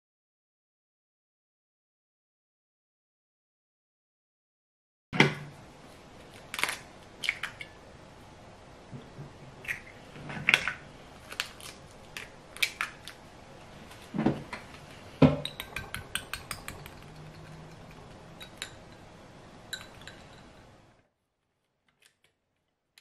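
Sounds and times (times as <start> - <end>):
whisk clinking against glass bowl: 15.4 - 19.1, 19.7 - 20.7.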